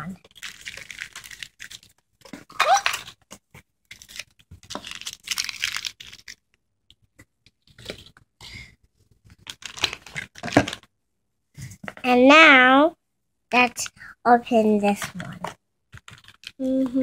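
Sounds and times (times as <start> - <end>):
plastic wrappers crinkling: 0.1 - 8.3, 9.2 - 10.9, 15.0 - 17.0.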